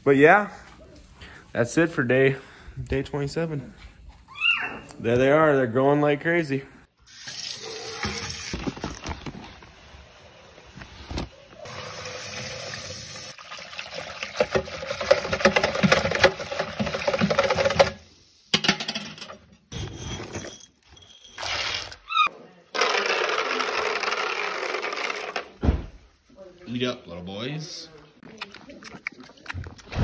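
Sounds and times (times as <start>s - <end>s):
liquid stirred and splashing in tub: 13.3s - 18.1s.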